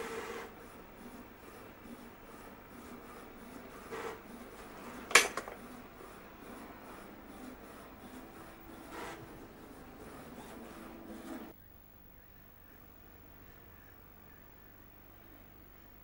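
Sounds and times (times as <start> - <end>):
sharp click: 5.1 - 5.6.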